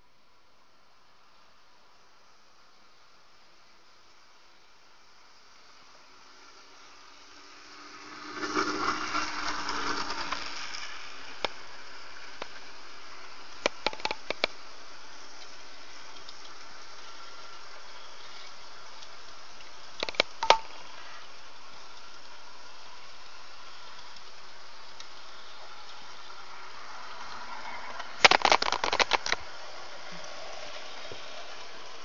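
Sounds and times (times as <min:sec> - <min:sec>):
model train running hiss: 0:00.0 - 0:32.0
held tones: 0:20.0 - 0:20.8
sharp clicks: 0:20.0 - 0:20.8.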